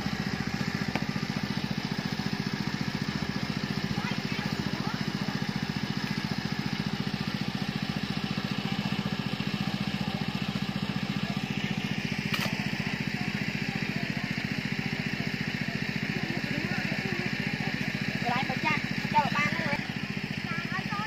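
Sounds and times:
small engine running: 0.0 - 21.0
sharp click: 12.3 - 12.6.

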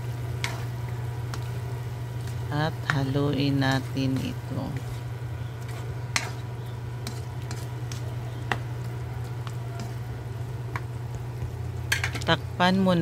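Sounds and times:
soft sizzle: 0.0 - 13.0
steady low hum: 0.0 - 13.0
spatula scraping a wok: 0.3 - 1.4, 4.1 - 8.4.

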